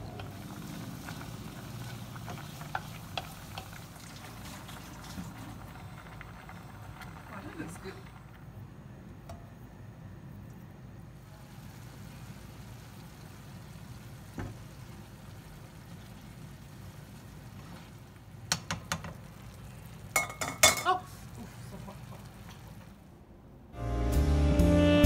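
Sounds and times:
utensil clinking frying pan: 20.1 - 21.0.

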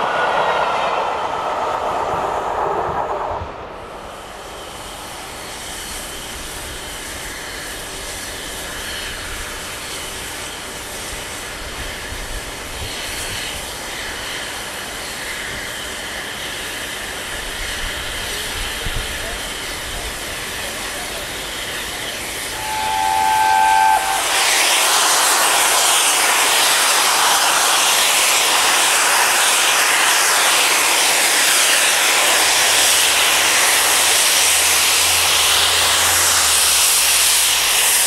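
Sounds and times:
passing train rushing: 0.0 - 9.0, 19.8 - 38.0
steam hissing from locomotive: 3.6 - 38.0.

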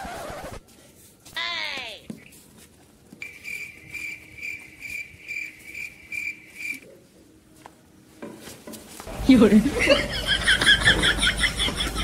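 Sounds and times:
cricket chirping: 3.2 - 6.9.

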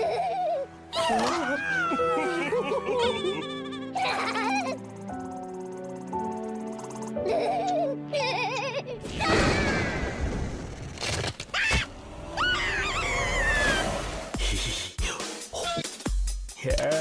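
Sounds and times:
cartoon creature wavering scream: 11.6 - 14.0.

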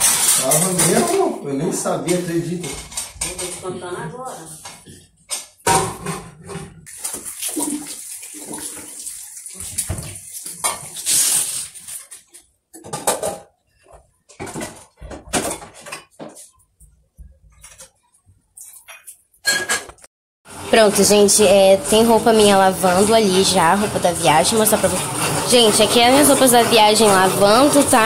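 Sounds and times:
water running into sink: 6.8 - 12.2, 20.7 - 28.0
short splashes and knocks: 6.9 - 11.0.

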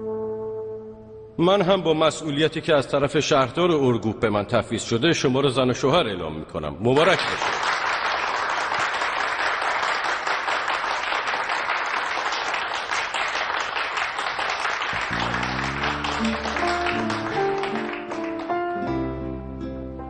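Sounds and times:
soft guitar music: 0.0 - 1.4, 15.0 - 20.0
crowd applauding: 7.0 - 18.9.

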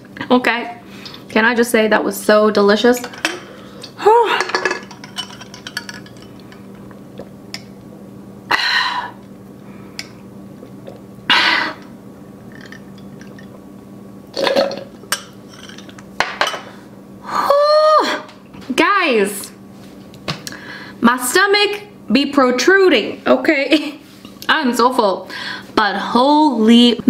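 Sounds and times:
person humming: 4.0 - 4.5.

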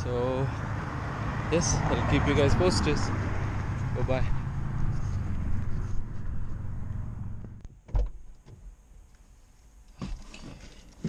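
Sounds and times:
steady low rumble: 1.7 - 8.4.

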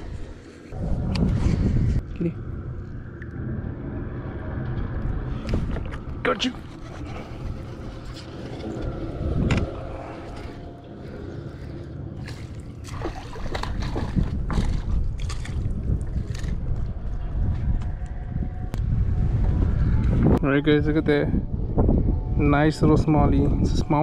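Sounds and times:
water splashing and sloshing: 0.0 - 18.2
steady low rumble: 0.0 - 24.0.

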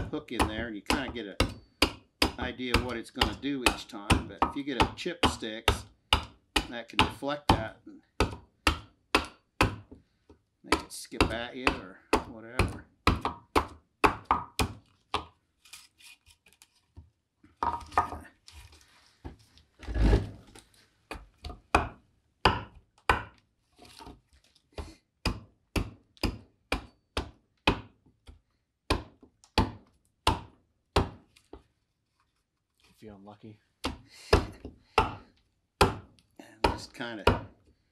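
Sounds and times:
adze chopping into wood: 0.4 - 9.9, 21.8 - 23.3, 25.2 - 27.9, 28.9 - 31.2, 33.8 - 37.6.

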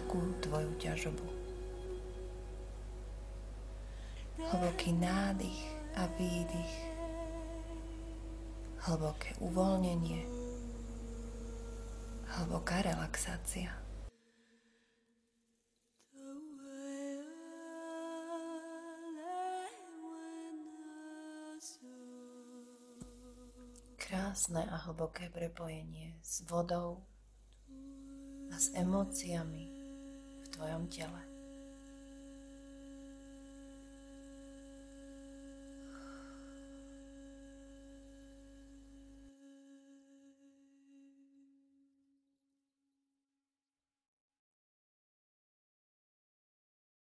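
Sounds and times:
woman humming: 0.0 - 3.4, 4.4 - 13.6, 27.7 - 41.7
low ambient drone: 0.0 - 14.2, 27.7 - 40.9.

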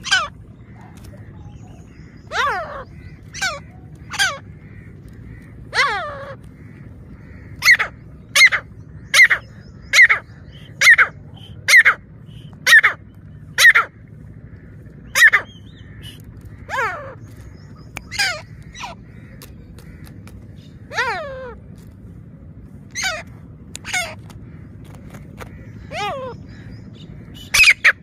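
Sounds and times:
francolin harsh calls: 0.0 - 21.6.

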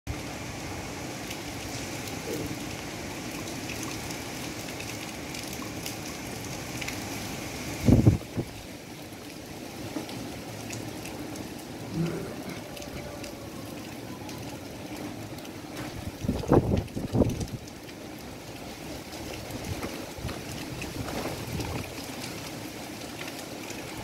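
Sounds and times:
strong wind through palm trees: 0.1 - 24.0
wind gust buffeting: 16.0 - 17.6.

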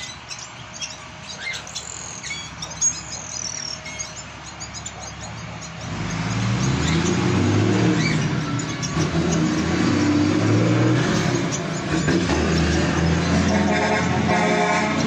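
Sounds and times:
faint bird chirps: 0.0 - 13.6
vehicle engine running loud: 0.0 - 15.0.

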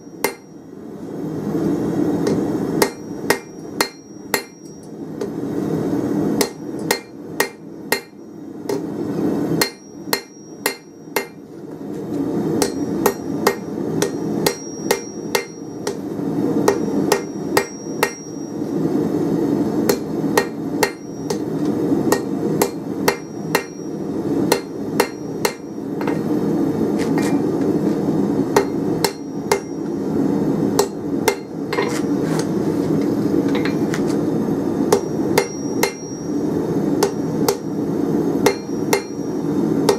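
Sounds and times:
hammer striking steel on anvil: 0.0 - 0.6, 2.2 - 5.4, 6.4 - 8.9, 9.6 - 11.4, 12.6 - 18.7, 19.8 - 26.3, 27.0 - 27.8, 28.5 - 30.0, 30.8 - 32.1, 33.5 - 34.2, 34.9 - 36.4, 37.0 - 37.7, 38.4 - 39.9
steady low hum: 0.0 - 39.9.

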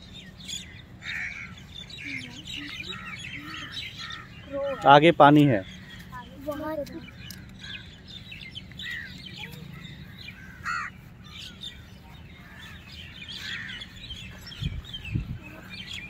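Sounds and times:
birds chirping: 0.0 - 16.0
crows cawing: 0.6 - 6.7, 7.3 - 8.0, 8.8 - 14.6.

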